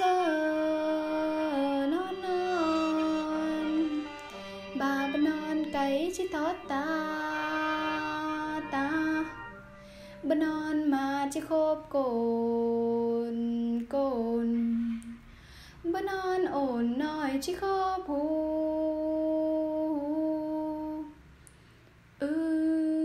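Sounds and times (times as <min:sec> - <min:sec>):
woman singing folk song: 0:00.0 - 0:09.6, 0:10.2 - 0:21.2, 0:22.2 - 0:23.0
soft instrumental backing: 0:00.0 - 0:15.2.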